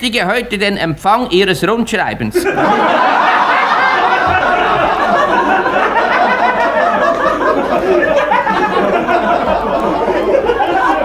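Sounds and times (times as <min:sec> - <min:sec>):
audience laughing: 0:02.4 - 0:11.0.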